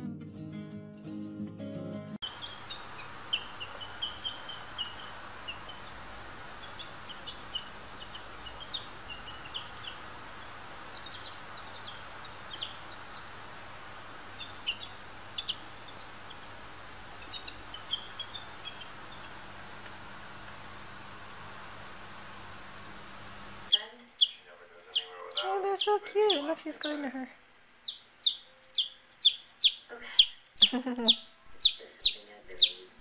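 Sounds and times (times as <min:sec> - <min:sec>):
chick peeping: 0:02.2 - 0:13.4, 0:14.3 - 0:16.5, 0:17.1 - 0:19.4, 0:23.7 - 0:27.2, 0:27.8 - 0:33.0
background hiss: 0:02.2 - 0:33.0.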